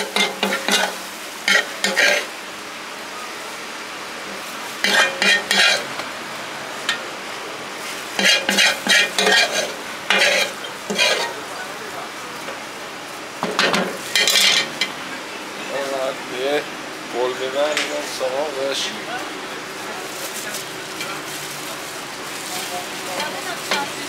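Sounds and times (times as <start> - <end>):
metal spatula scraping a pan: 0.0 - 2.3, 4.8 - 5.9, 8.2 - 11.4, 13.6 - 14.8
meat sizzling in a hot pan: 0.0 - 2.4, 4.6 - 6.0, 7.8 - 11.4.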